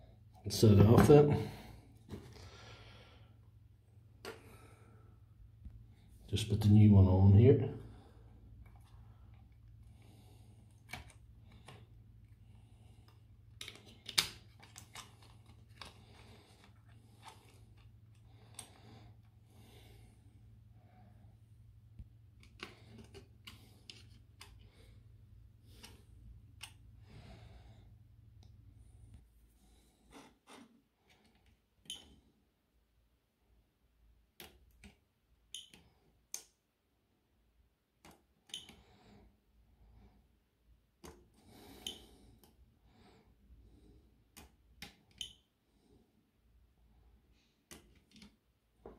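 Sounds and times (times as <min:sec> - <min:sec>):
hands clicking and tapping battery: 0:13.5 - 0:16.0, 0:22.0 - 0:24.7, 0:34.3 - 0:36.6, 0:38.0 - 0:38.8, 0:44.3 - 0:45.4, 0:47.6 - 0:48.4.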